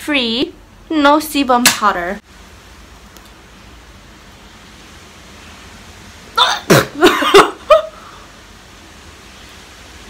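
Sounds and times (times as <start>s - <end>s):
woman's vocal outburst: 6.4s - 8.0s.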